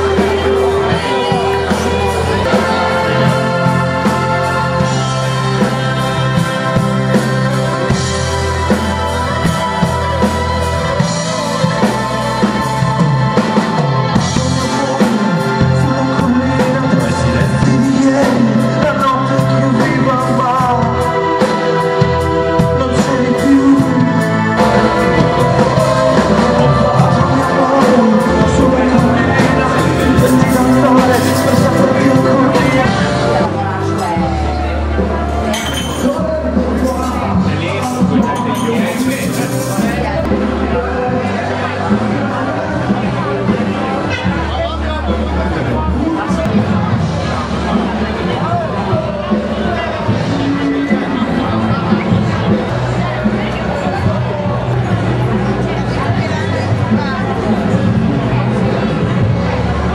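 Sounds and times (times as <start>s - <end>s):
person singing: 0.0s - 44.1s
rock song: 0.0s - 59.9s.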